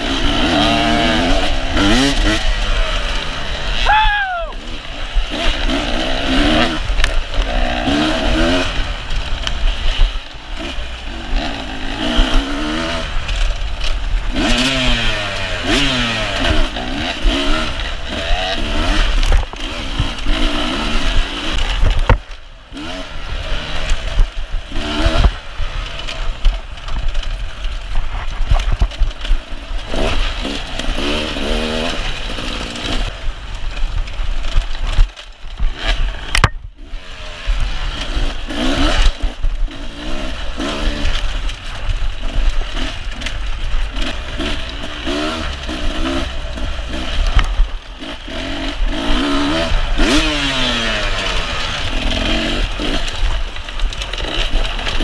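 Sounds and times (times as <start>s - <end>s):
motorcycle engine revving: 0.0s - 55.0s
brush scraping against bike: 24.8s - 33.1s.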